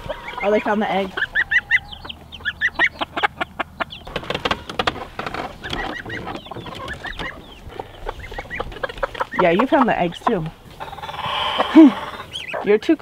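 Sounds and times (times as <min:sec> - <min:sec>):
chicks peeping: 0:00.0 - 0:13.0
hen clucking: 0:00.0 - 0:13.0
sharp taps and knocks: 0:04.1 - 0:07.8.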